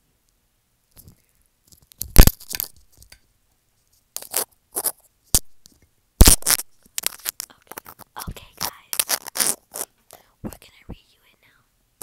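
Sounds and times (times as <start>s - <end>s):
hand rubbing and tapping phone: 7.1s - 11.1s.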